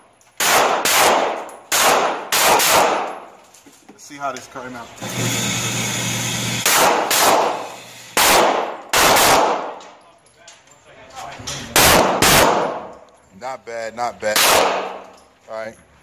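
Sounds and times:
loud gunshots echoing indoors: 0.4 - 3.3, 6.4 - 9.9, 11.7 - 13.0, 14.3 - 15.2.

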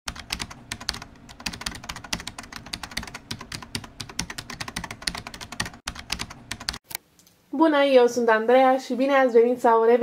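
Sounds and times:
keyboard typing clicks: 0.1 - 7.0.

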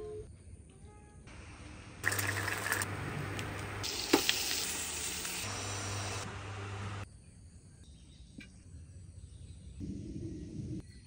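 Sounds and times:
eggs sizzling in a pan: 2.0 - 7.0.

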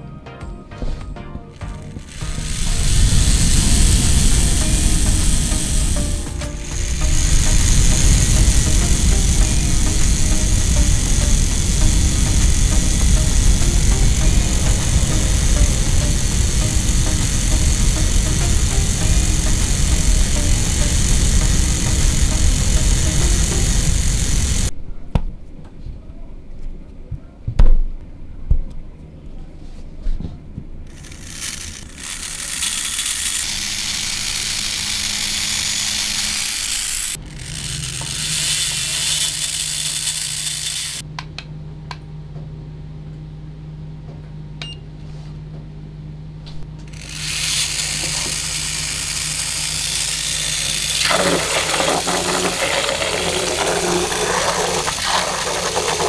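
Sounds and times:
small electric motors whirring: 1.6 - 24.7, 30.9 - 41.0, 46.8 - 56.0
propeller splashing water: 51.0 - 56.0.

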